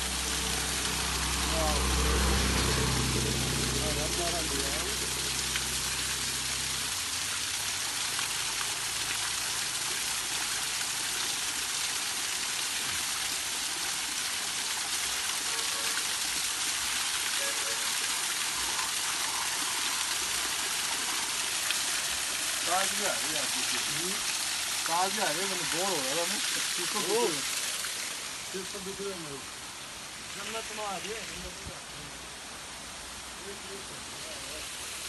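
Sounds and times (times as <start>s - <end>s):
waterfall splashing onto stone: 0.0s - 31.7s.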